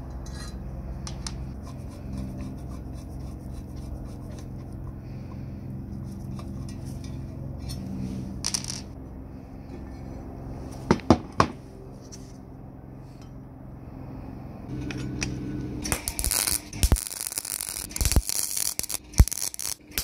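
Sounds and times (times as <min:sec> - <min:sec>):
screwdriver scraping metal: 0:01.2 - 0:05.0.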